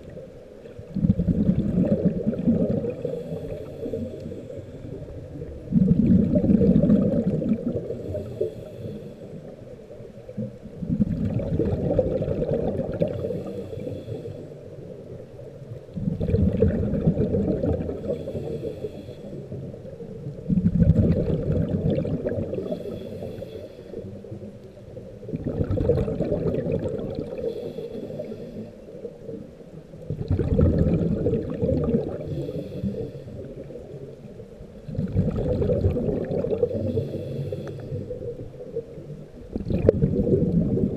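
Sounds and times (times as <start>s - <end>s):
underwater exhale bubbles: 0.0s - 9.6s, 10.2s - 14.8s, 15.9s - 40.9s
regulator inhale hiss: 3.0s - 5.1s, 7.9s - 9.7s, 13.0s - 14.9s, 18.0s - 19.8s, 22.6s - 24.4s, 27.3s - 29.1s, 32.2s - 33.8s, 36.6s - 38.3s.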